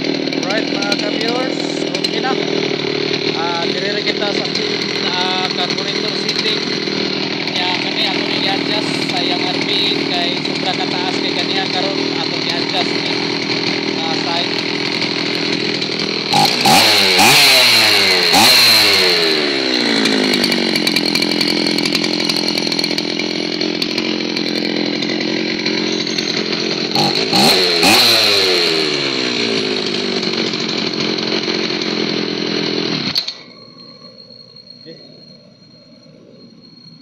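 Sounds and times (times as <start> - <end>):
chainsaw engine idling: 0.0 - 37.0
chainsaw throttle blips: 0.0 - 37.0.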